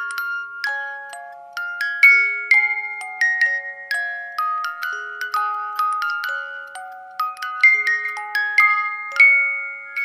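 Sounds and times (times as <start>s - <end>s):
bell-like lullaby melody: 0.0s - 10.0s.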